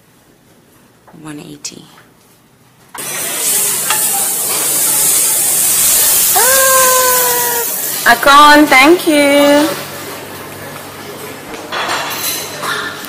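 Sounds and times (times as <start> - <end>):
omelette sizzling in a pan: 3.0 - 8.1.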